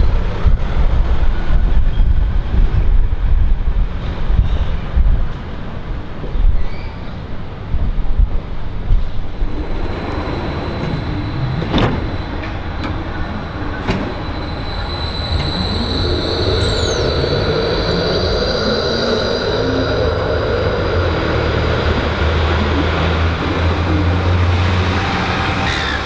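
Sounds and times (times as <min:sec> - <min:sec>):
tram wheels rumbling on rail: 0:00.0 - 0:26.0
high-pitched tram motor whine: 0:09.4 - 0:26.0
brief falling squeak: 0:10.1 - 0:17.5.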